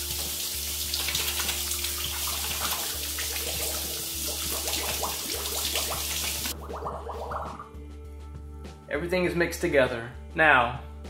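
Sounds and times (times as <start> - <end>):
faucet running into sink: 0.0 - 7.3
hands rinsed under water: 0.0 - 7.7.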